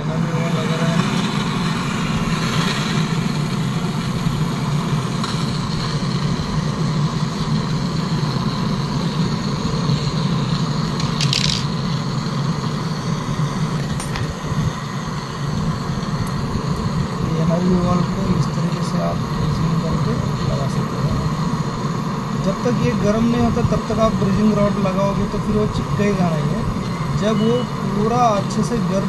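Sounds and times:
gas torch flame rushing: 0.0 - 29.0
sharp click: 11.0 - 11.7.

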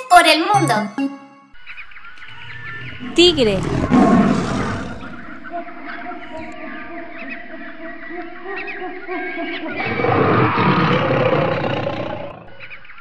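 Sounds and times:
high chirps: 0.5 - 6.6
tiger roaring: 2.2 - 6.6, 9.5 - 12.5.

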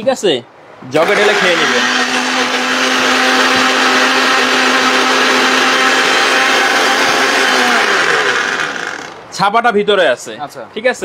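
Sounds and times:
blender motor running: 1.0 - 9.2.

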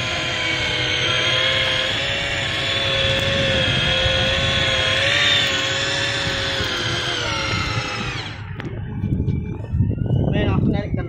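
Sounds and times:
electric fishing reel motor whining: 0.0 - 10.0
rough low rumble: 2.0 - 11.0.

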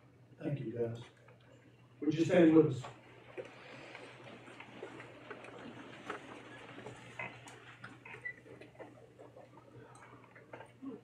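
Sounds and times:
people standing up rustling: 2.7 - 11.0.

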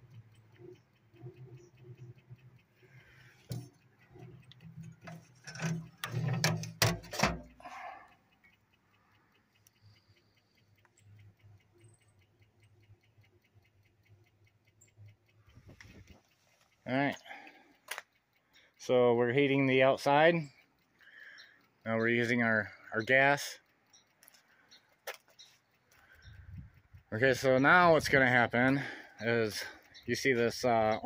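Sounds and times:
fast even ticking: 0.0 - 31.0
knocks and clatters: 4.9 - 7.6.

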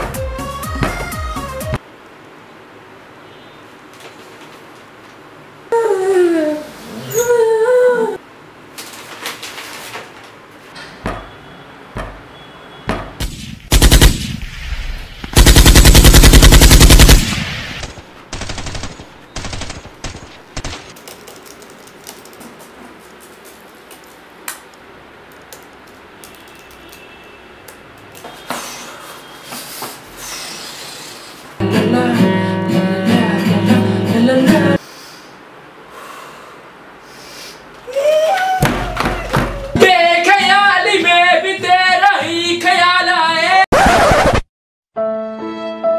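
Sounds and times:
music: 0.0 - 1.8, 31.6 - 34.8, 45.0 - 45.9
rapid-fire burst: 13.2 - 21.0.

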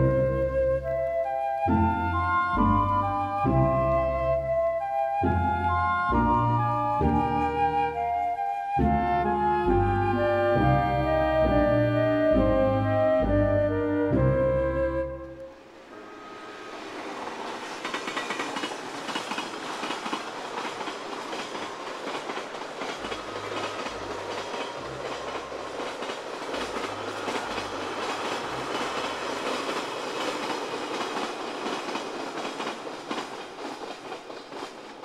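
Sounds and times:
freight train rumble: 0.0 - 35.0
wheels clacking over rail joints: 16.7 - 35.0.

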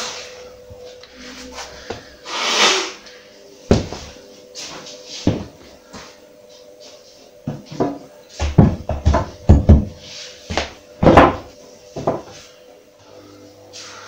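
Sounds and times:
wooden knocks and thumps: 7.5 - 10.0, 10.6 - 12.3.

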